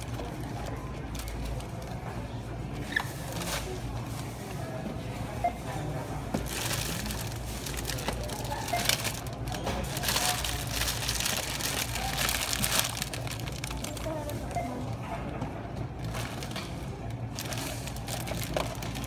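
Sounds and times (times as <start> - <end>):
plastic packaging crinkling: 6.4 - 14.8, 16.0 - 19.0.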